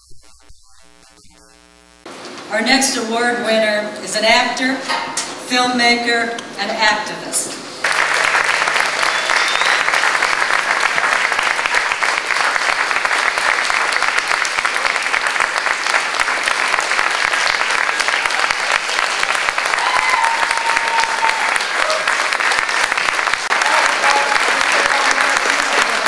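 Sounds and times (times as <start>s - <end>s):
audience applauding: 7.8s - 26.0s.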